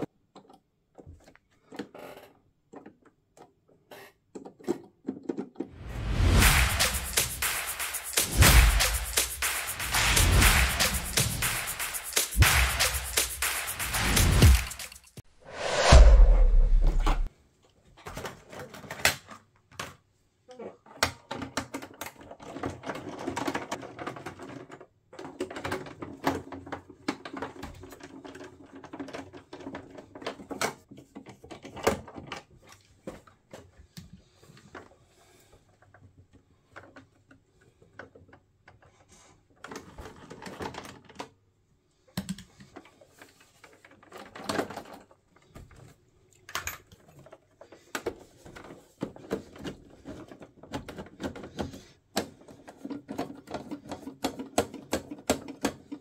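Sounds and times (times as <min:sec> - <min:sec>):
plastic cabinet clicking and rattling: 0:21.1 - 0:33.3, 0:46.9 - 0:56.0.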